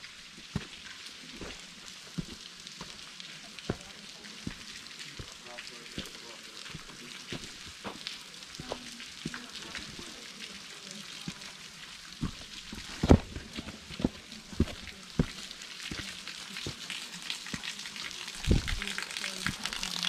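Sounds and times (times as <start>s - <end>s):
footsteps on a trail: 0.4s - 0.8s, 1.4s - 5.4s, 6.0s - 10.2s, 12.2s - 16.8s, 18.4s - 18.9s.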